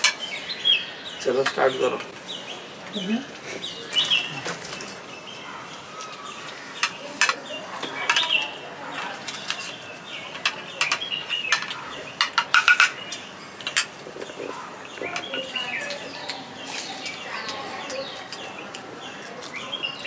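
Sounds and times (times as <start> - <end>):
small birds chirping: 0.0 - 20.0
plates clinking: 6.8 - 19.4.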